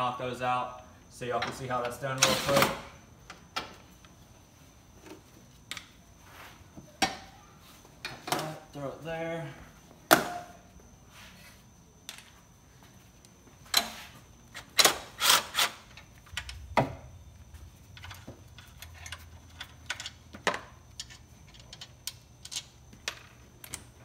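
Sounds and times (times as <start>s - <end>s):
impact wrench whirring: 14.8s - 15.8s.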